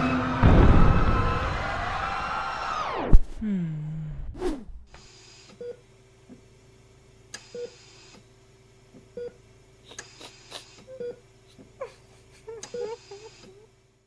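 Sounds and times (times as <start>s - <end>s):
faint steady hum: 3.4s - 14.0s.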